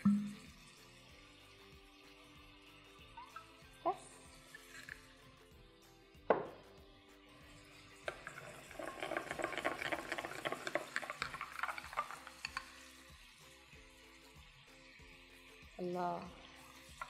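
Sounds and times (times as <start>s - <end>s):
spoon scraping ceramic bowl: 4.4s - 5.2s, 7.9s - 13.0s.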